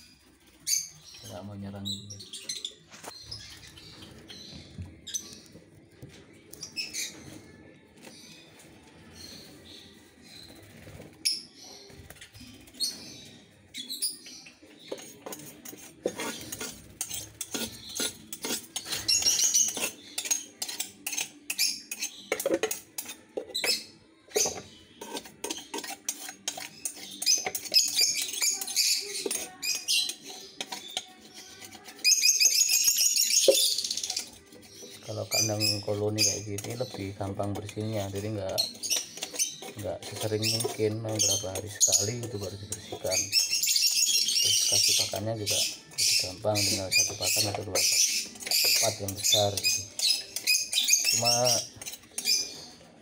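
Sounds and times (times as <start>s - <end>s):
lovebirds chirping: 0.0s - 53.0s
metal blade scraping wood: 14.9s - 22.3s, 24.4s - 32.3s.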